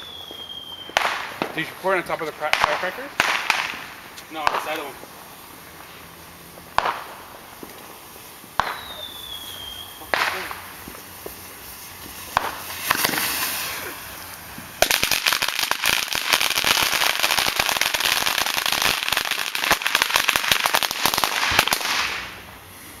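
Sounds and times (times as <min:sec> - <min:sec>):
firecrackers banging and crackling: 0:00.0 - 0:23.0
hiss: 0:03.5 - 0:23.0.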